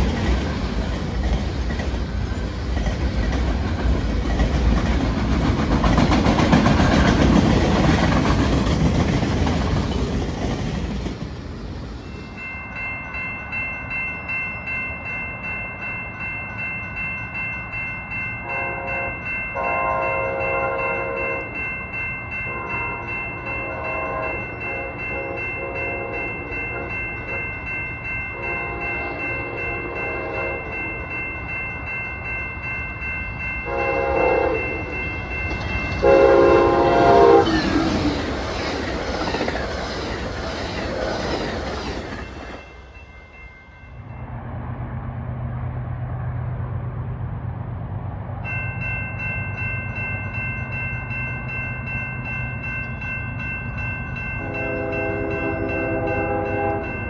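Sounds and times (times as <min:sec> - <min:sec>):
crossing warning bells ringing: 0:00.0 - 0:44.5, 0:48.3 - 0:57.0
train horn blasts: 0:18.4 - 0:21.5, 0:22.5 - 0:27.4, 0:28.4 - 0:30.8, 0:33.6 - 0:34.9, 0:36.0 - 0:37.7, 0:54.4 - 0:57.0.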